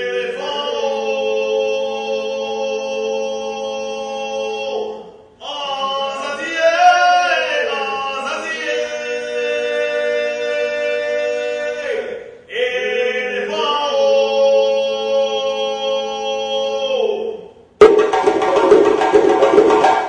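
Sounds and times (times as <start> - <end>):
men chanting unaccompanied: 0.0 - 17.4.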